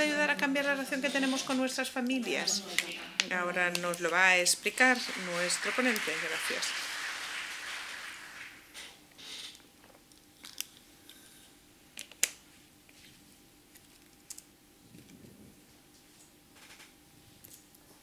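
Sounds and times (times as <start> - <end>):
audience applause: 4.7 - 8.8.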